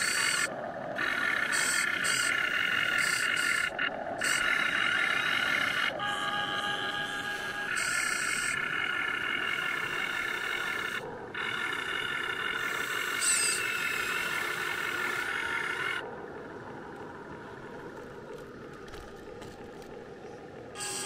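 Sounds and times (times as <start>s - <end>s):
electric motors whining: 0.0s - 16.0s, 20.8s - 21.0s.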